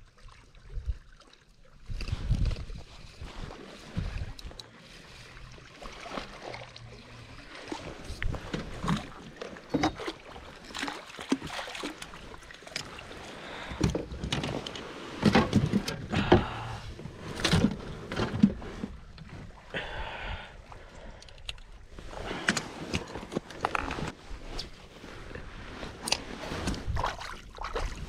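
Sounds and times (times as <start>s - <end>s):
water splashing: 2.6s - 13.8s, 26.0s - 28.0s
knocks and rattles on kayak: 7.9s - 13.0s, 13.6s - 19.5s, 22.3s - 24.8s.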